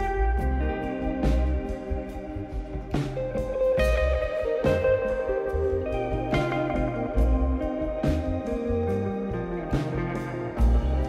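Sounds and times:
blues guitar piece: 0.0 - 11.0.

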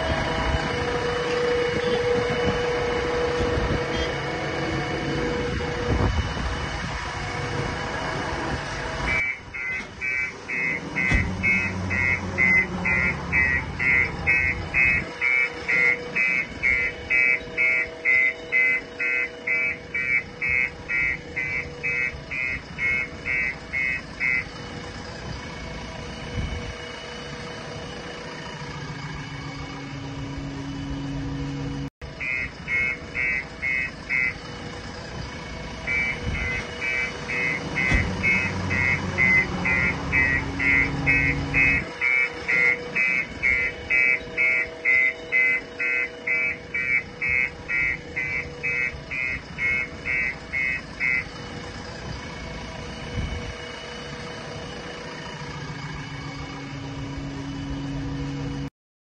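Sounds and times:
diesel engine running: 0.0 - 58.7
high-pitched warning beeps: 9.1 - 24.5, 32.2 - 34.4, 35.8 - 51.3.

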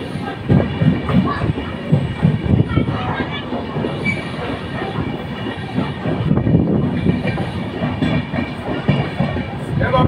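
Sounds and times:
train wheels rumbling and clattering: 0.0 - 10.0
faint high wheel squeal: 4.0 - 4.5.

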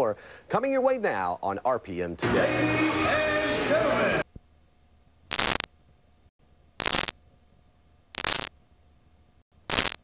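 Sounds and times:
faint steady hum: 4.2 - 10.0
bursts of static hiss: 5.3 - 5.7, 6.8 - 7.2, 8.2 - 8.5, 9.6 - 10.0.

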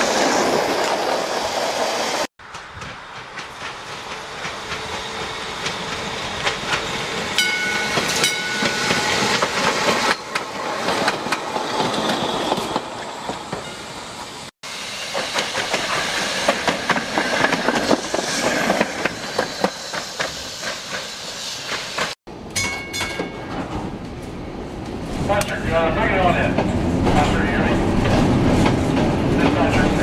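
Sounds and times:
streetcar rumbling hiss: 13.8 - 22.2.

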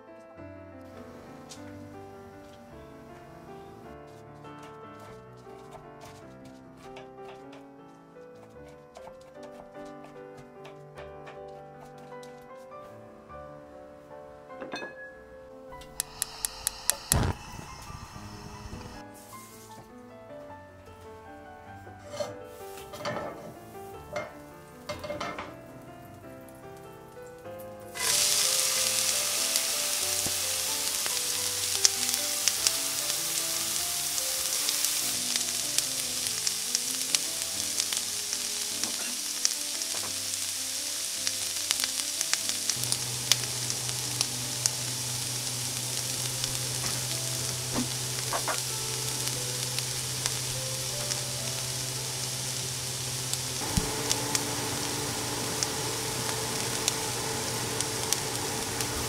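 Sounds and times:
food sizzling in butter: 0.9 - 4.0, 15.7 - 19.8, 27.9 - 59.0
crackles and pops while stirring: 0.9 - 12.7, 15.8 - 19.0, 24.1 - 59.0.

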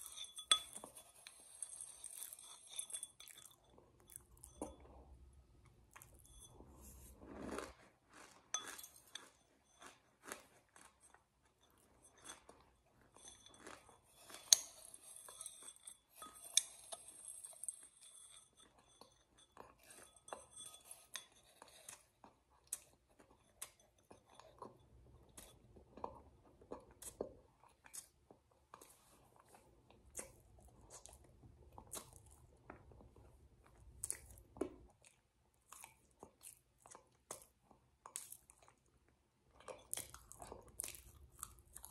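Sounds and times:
chewing and crunching ice: 0.0 - 41.9.

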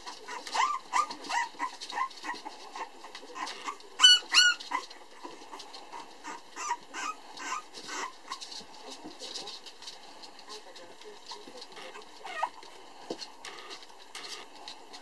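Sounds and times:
puppies whining and yipping: 0.0 - 8.6, 11.8 - 12.7
puppy yelps: 0.3 - 2.4, 3.4 - 4.8, 6.2 - 8.4, 12.2 - 12.6.

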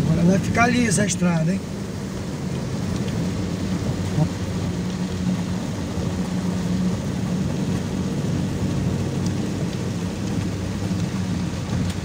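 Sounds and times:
heavy rain hissing on windshield: 0.0 - 12.0
vehicle engine drone and tyre noise: 0.0 - 12.0.

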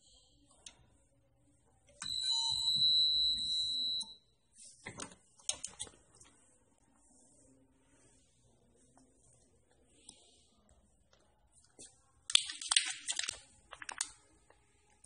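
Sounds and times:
steady high beep: 2.0 - 4.3.

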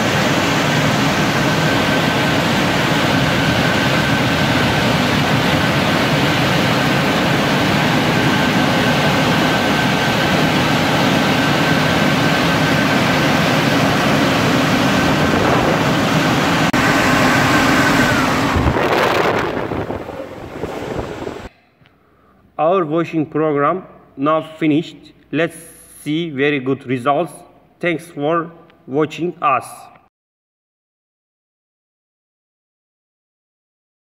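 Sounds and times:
car wash dryer blowers whining: 0.0 - 21.5.

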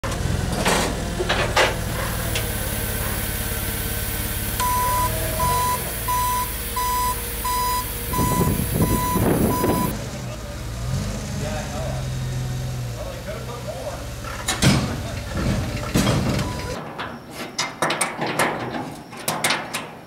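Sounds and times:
forklift engine running: 0.0 - 16.8
reversing alarm beeps: 4.6 - 9.9.

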